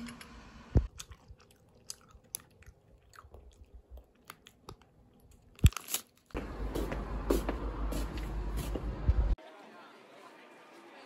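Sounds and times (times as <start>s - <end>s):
outdoor traffic noise: 6.3s - 9.4s.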